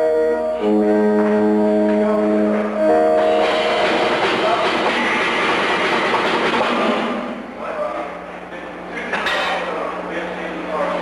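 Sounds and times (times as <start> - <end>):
electric guitar sustained chords: 0.0 - 7.5
noisy wash of instruments: 2.1 - 7.6.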